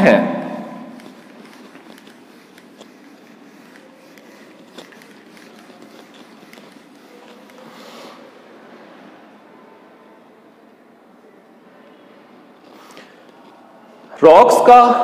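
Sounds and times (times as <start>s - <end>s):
eraser scrubbing whiteboard: 0.8s - 8.9s, 12.6s - 14.0s
eraser click: 0.9s - 8.2s.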